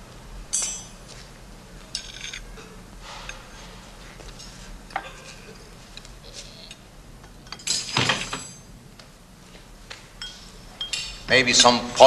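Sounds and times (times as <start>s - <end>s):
cutlery and china clinking: 0.5s - 1.0s, 1.9s - 2.7s, 7.4s - 8.7s.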